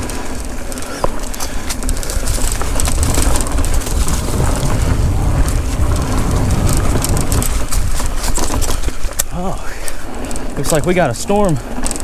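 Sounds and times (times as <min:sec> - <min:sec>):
wind rumble on microphone: 0:00.0 - 0:09.2
bike rattling clicks: 0:00.0 - 0:12.0
bike tyre noise: 0:00.0 - 0:12.0.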